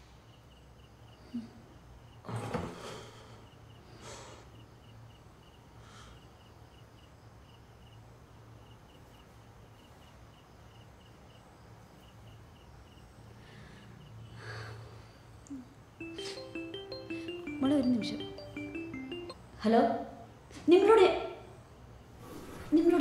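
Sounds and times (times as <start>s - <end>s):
crickets chirping: 3.2s - 15.4s.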